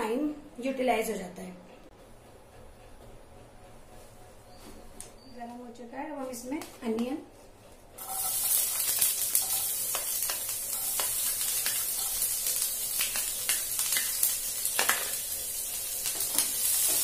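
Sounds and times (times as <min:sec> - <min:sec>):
onion sizzling in hot oil: 0:08.0 - 0:17.0.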